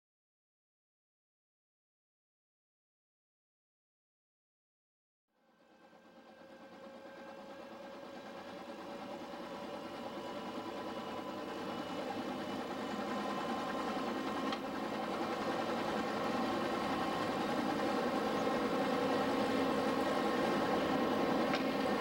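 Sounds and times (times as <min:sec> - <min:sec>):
helicopter turbine and rotor whine: 0:05.4 - 0:22.0.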